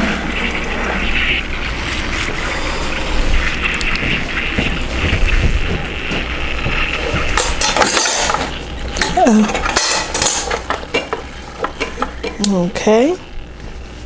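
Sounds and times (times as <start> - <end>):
steady hum: 0.0 - 14.0
metal baking pan clinking: 7.4 - 12.1.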